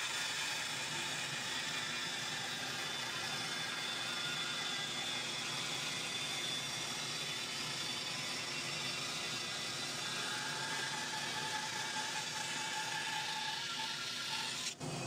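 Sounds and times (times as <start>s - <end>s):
bandsaw cutting a board: 0.0s - 15.0s.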